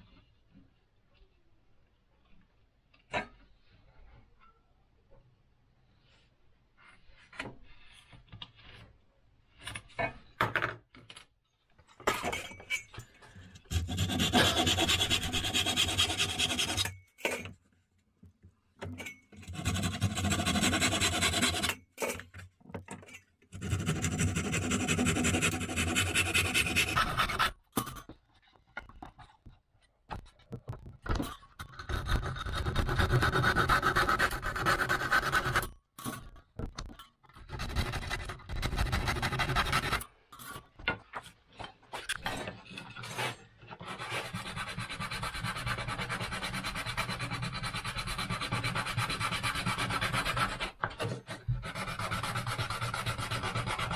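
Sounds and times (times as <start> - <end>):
hand saw cutting wood: 13.7 - 16.9, 19.4 - 21.8, 23.6 - 27.6, 43.8 - 53.9.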